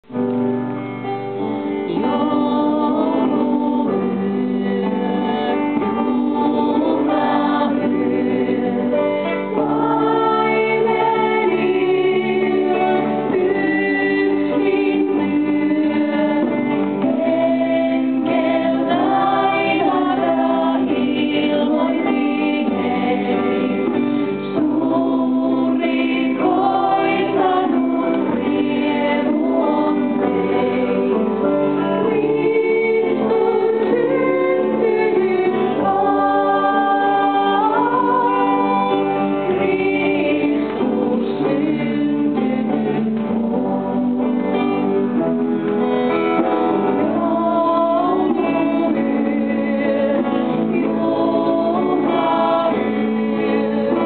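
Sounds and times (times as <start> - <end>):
instrumental accompaniment: 0.0 - 54.0
women singing into microphones: 1.7 - 54.0.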